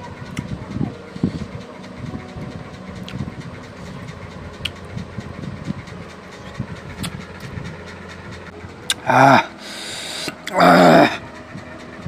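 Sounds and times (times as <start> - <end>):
low steady hum: 0.0 - 12.0
man chewing: 6.4 - 7.8, 8.8 - 11.2.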